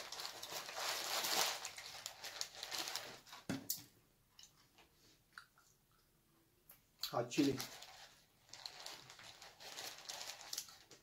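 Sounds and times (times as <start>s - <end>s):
paper wrappers rustling: 0.0s - 3.5s, 7.2s - 11.0s.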